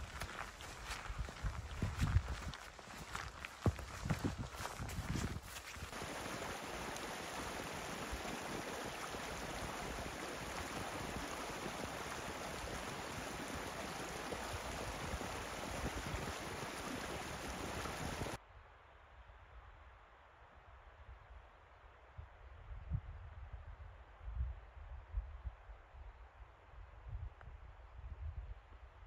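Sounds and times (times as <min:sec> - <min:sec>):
mountain stream rushing: 0:00.0 - 0:18.4.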